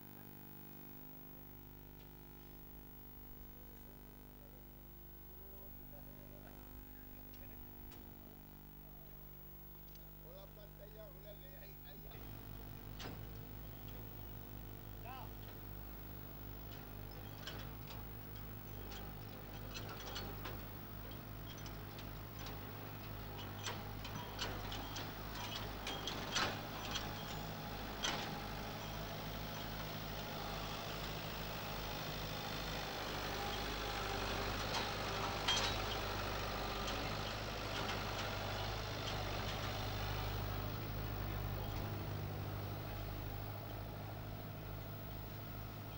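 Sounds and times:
tractor diesel engine running: 11.4s - 45.9s
sharp clicks and knocks: 16.7s - 31.2s.

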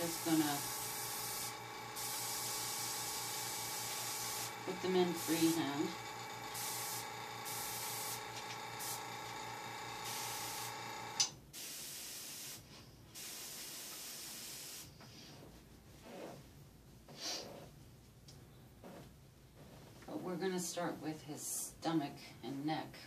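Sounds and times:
air compressor hum: 0.0s - 11.8s
airbrush spraying hiss: 0.0s - 15.0s.

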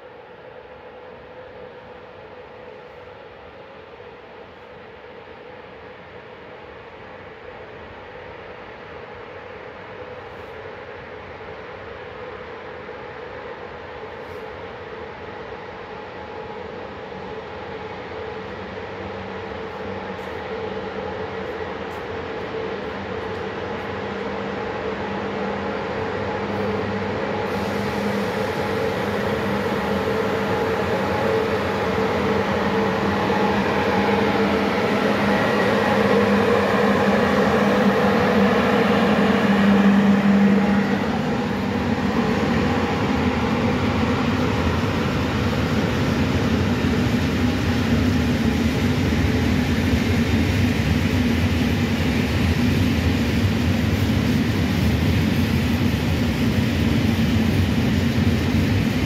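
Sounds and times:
locomotive hum: 0.1s - 59.0s
freight wagons rumbling on rails: 26.0s - 59.0s.

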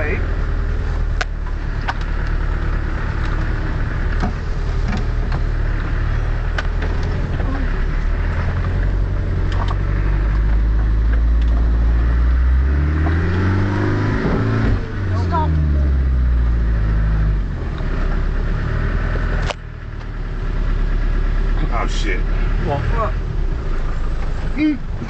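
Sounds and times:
off-road vehicle engine running: 0.0s - 25.0s
vehicle knocks and rattles: 3.1s - 11.7s.

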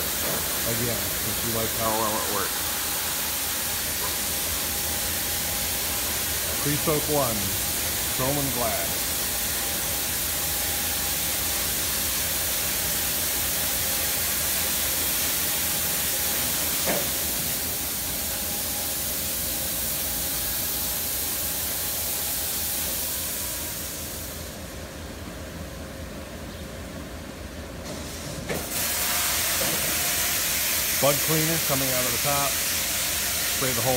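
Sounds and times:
high-pressure nozzles hissing: 0.0s - 24.6s, 28.6s - 33.9s.

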